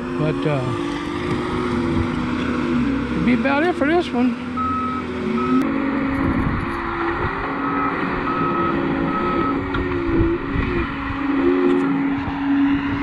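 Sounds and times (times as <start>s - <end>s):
diesel engine running: 0.0s - 13.0s
backup alarm beeping: 4.6s - 5.6s, 7.6s - 9.6s.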